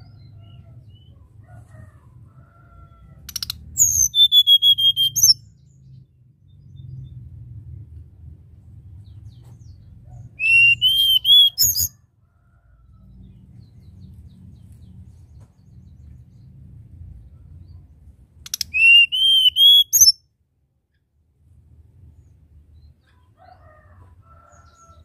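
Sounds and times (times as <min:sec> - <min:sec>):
bird whistling song: 0:03.3 - 0:05.5, 0:10.4 - 0:11.9, 0:18.5 - 0:20.2.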